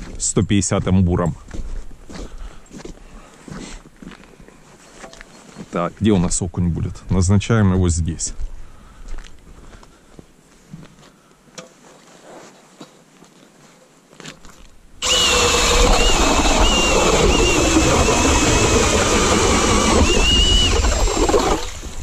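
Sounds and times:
auger grinding through ice: 15.0 - 22.0
cordless drill motor whine: 15.0 - 22.0.

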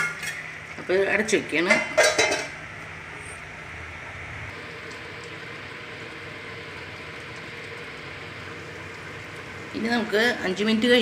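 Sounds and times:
pot of stew simmering: 2.5 - 11.0.

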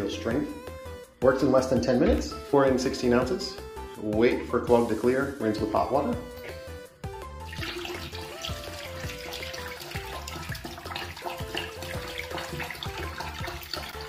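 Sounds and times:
background music with steady beat: 0.0 - 14.0
liquid pouring into sink drain: 7.4 - 14.0.

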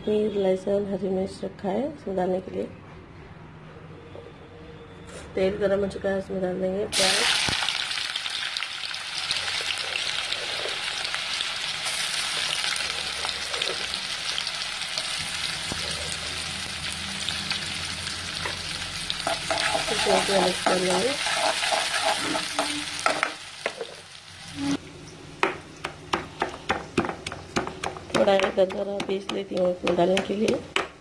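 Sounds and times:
onions sizzling in hot oil: 6.9 - 24.8
pestle knocking in stone mortar: 25.4 - 31.0.

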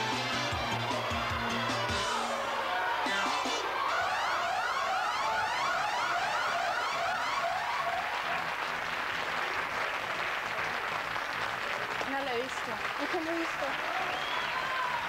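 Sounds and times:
audience applause: 0.1 - 15.0
warbling electronic siren effect: 3.1 - 8.5.

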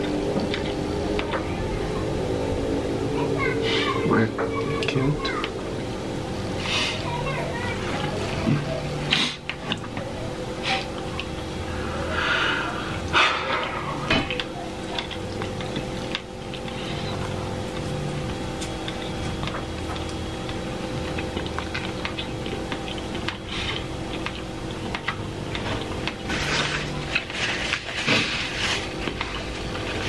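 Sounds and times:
steady low hum: 0.0 - 30.0
slurping and chewing noodles: 10.6 - 30.0.

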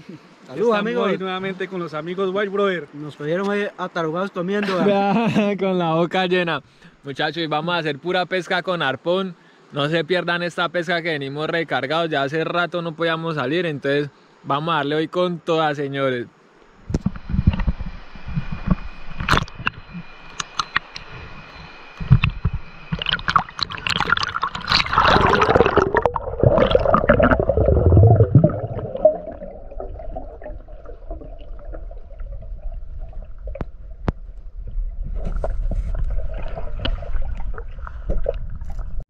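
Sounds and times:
water bubbling around microphone: 16.8 - 39.0.

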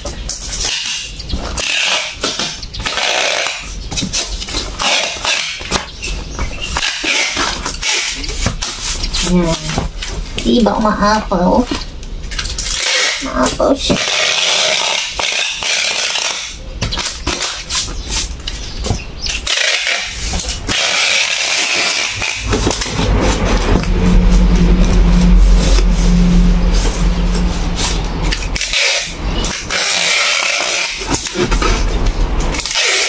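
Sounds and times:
packing tape dispenser: 0.6 - 3.8, 4.7 - 5.8, 6.8 - 8.7, 12.3 - 13.2, 14.0 - 17.8, 19.3 - 23.0, 28.3 - 33.0
engine hum: 22.1 - 29.8.

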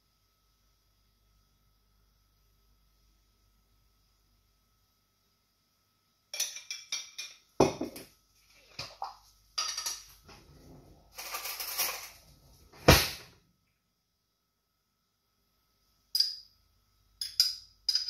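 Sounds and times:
metal spoon clinking on glass jar: 6.4 - 7.4, 16.1 - 16.5, 17.2 - 18.0.

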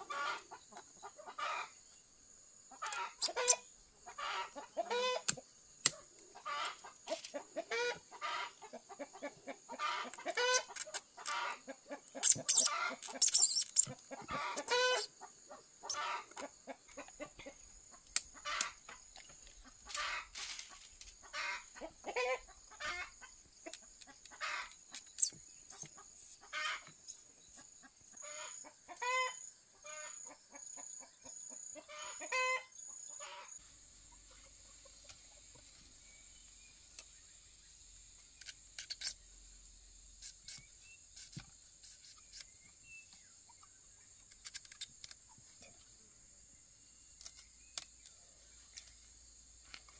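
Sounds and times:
chickens clucking: 0.0 - 2.0, 2.6 - 37.2.

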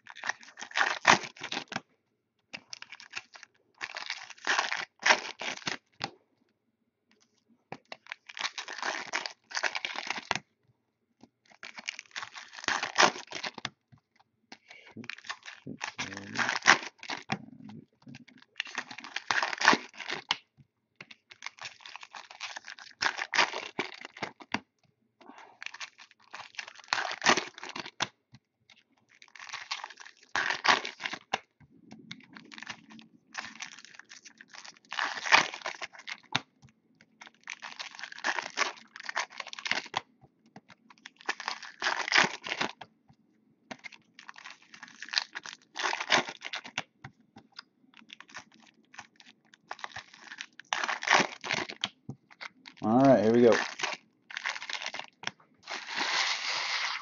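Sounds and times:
foil wrappers tearing: 0.1 - 1.8, 2.7 - 5.8, 8.0 - 10.4, 11.5 - 13.6, 14.9 - 17.4, 18.5 - 20.4, 21.3 - 24.4, 25.6 - 28.1, 29.2 - 31.4, 32.4 - 36.4, 37.2 - 40.0, 41.1 - 42.8, 43.8 - 46.8, 48.0 - 57.0.

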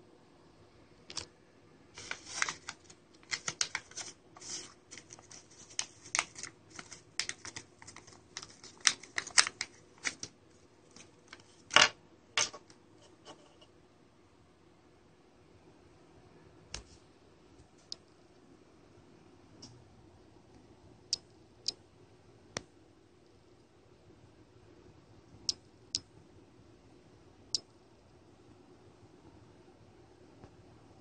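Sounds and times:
plastic bag crinkling: 2.0 - 10.3.

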